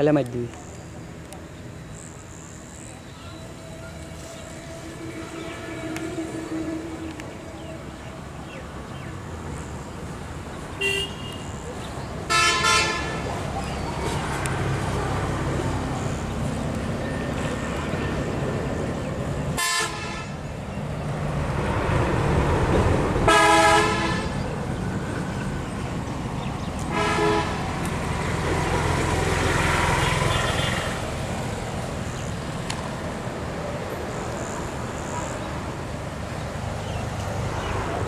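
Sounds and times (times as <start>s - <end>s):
low traffic rumble: 0.0s - 38.0s
vehicle horn toots: 4.4s - 7.6s, 10.8s - 11.6s, 12.3s - 13.2s, 19.6s - 20.3s, 23.3s - 24.4s, 26.9s - 27.6s.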